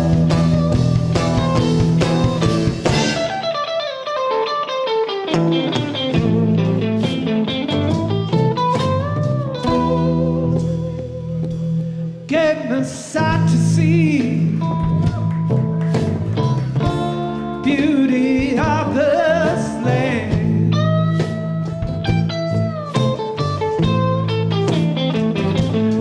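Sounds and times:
low bass line: 0.0 - 3.5, 5.5 - 12.4, 13.2 - 26.0
guitars: 0.0 - 26.0
man singing with vibrato: 5.9 - 7.1, 12.2 - 15.1, 17.2 - 21.1.

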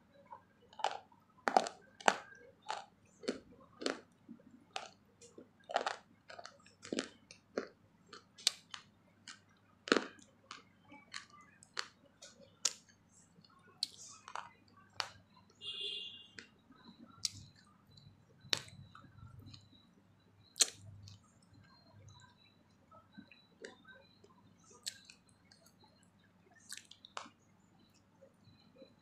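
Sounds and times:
person chewing crunchy food: 0.3 - 15.2, 17.2 - 19.8, 20.5 - 21.8, 23.2 - 25.7, 26.6 - 27.3.

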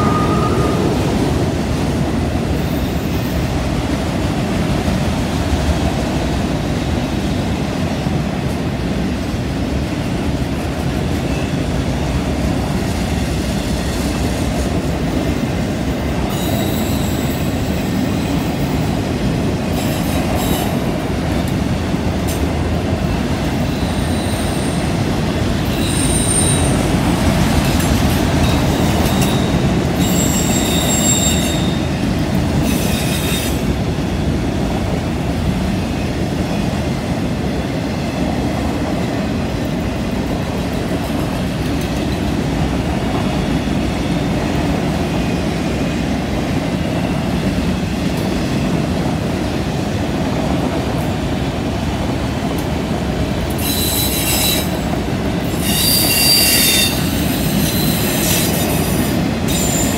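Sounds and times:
train wheels rumbling on rails: 0.0 - 59.9
wheel flanges squealing: 55.5 - 59.9.

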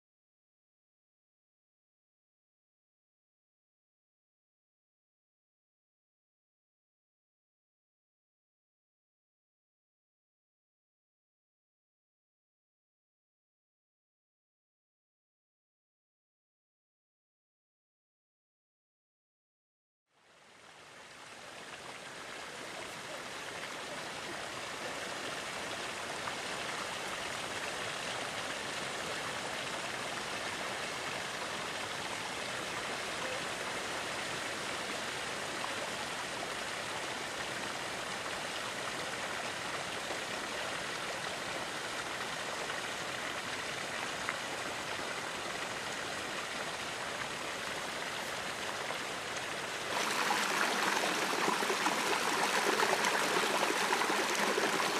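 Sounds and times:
water splashing into a pool: 45.7 - 54.9.

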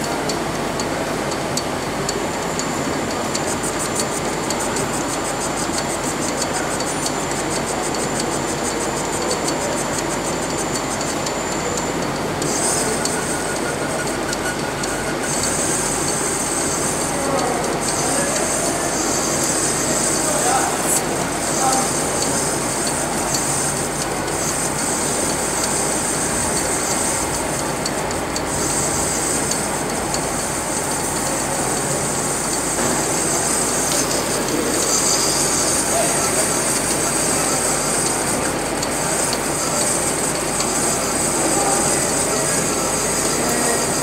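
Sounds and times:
metal lathe running: 0.0 - 44.0
hissing of cutting tool: 12.4 - 44.0.

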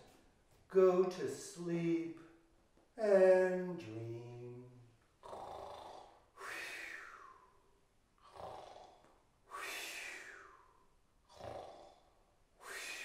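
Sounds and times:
man imitating snoring breaths: 5.2 - 7.6, 8.2 - 13.0.

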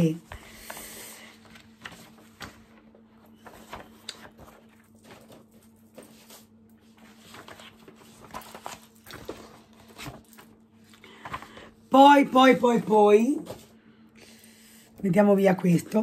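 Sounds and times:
steady low hum: 0.0 - 16.0
packaging being handled: 0.4 - 11.7.

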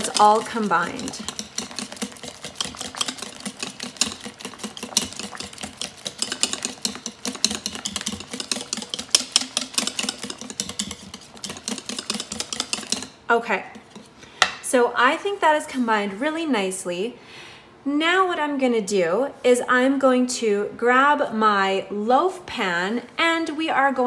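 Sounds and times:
whisk beating batter in bowl: 0.0 - 14.1.

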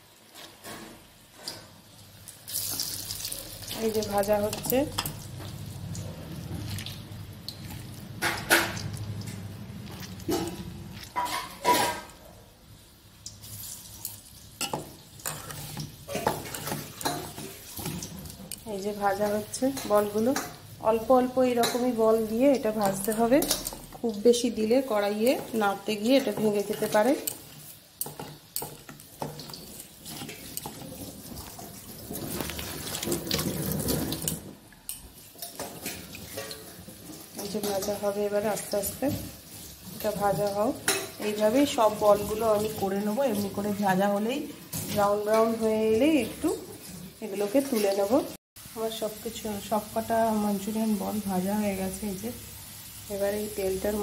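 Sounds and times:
deep-frying sizzle in oil: 0.0 - 54.0
hands squeezing moist mixture: 5.5 - 8.2, 8.8 - 11.3.

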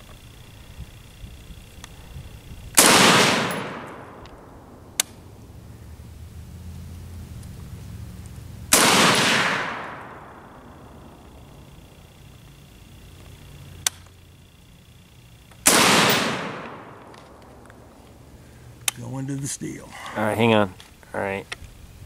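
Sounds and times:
rifle shots echoing: 2.8 - 5.0, 8.7 - 11.6, 15.6 - 17.9.

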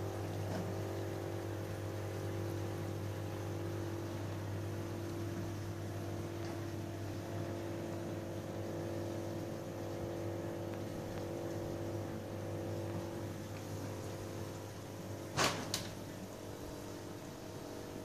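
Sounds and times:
aquarium pumps humming: 0.0 - 18.0.

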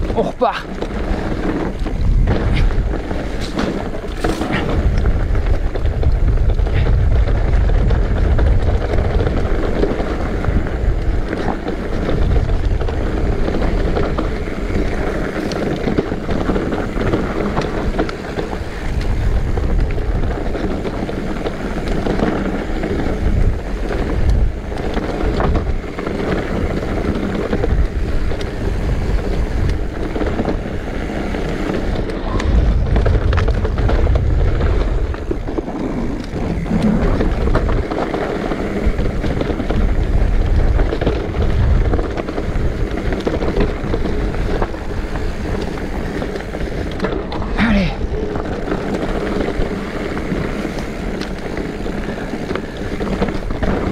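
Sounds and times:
bike knocks and rattles: 0.0 - 53.9
tyres rumbling on ground: 0.0 - 53.9
wind buffeting microphone: 0.0 - 53.9.

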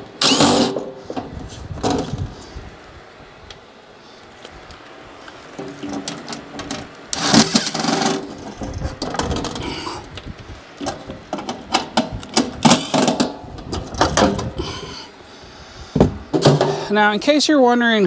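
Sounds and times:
cordless drill running: 0.2 - 0.7.

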